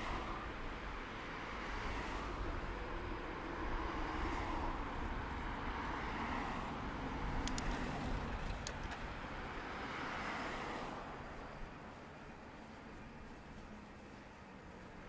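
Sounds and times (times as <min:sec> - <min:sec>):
car tyre and engine noise: 0:00.0 - 0:15.0.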